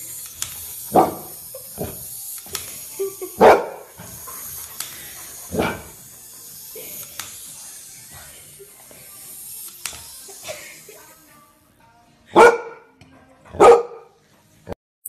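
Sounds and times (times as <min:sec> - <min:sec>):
dog barking: 0:03.4 - 0:03.8, 0:12.3 - 0:12.9, 0:13.5 - 0:14.2.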